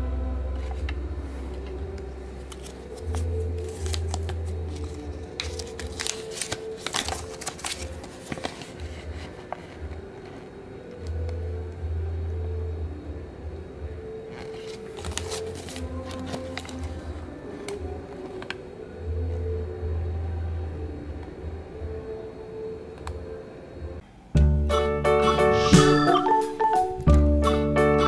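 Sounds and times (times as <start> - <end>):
paper crinkling: 2.4 - 9.8, 14.4 - 18.6.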